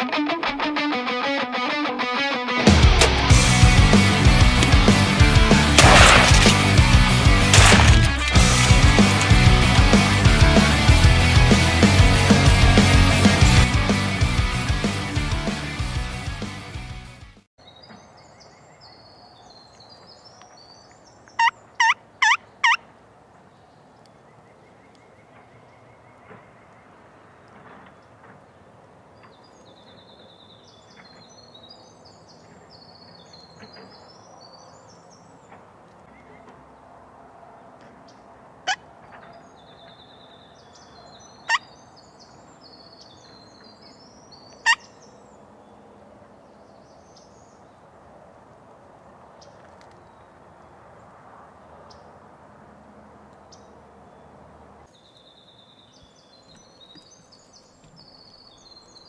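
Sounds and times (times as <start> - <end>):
high bird song: 17.6 - 36.8, 37.6 - 48.0, 53.3 - 59.0
turkey calling: 21.4 - 22.8, 44.6 - 45.0.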